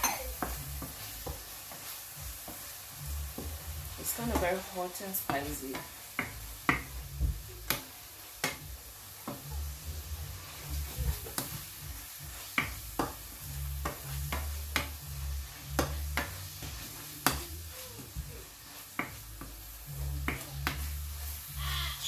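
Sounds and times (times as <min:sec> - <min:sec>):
wooden spoon knocking on pan: 0:00.0 - 0:02.7, 0:03.3 - 0:04.6, 0:05.2 - 0:09.5, 0:11.1 - 0:15.0, 0:15.7 - 0:21.0
meat sizzling: 0:00.0 - 0:22.0.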